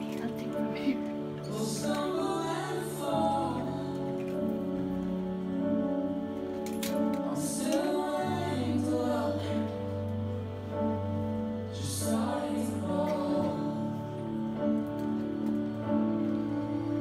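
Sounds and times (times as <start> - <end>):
slow tender music with singing: 0.0 - 17.0.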